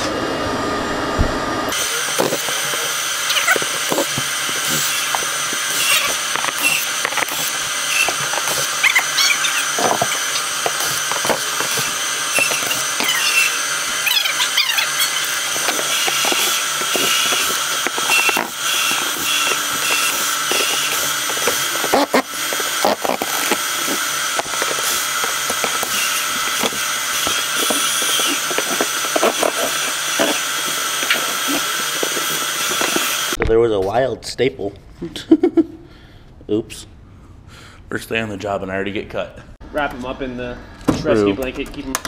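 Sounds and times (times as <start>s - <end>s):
cordless drill driving screws: 1.7s - 33.4s
boards and tools clattering: 2.1s - 33.4s.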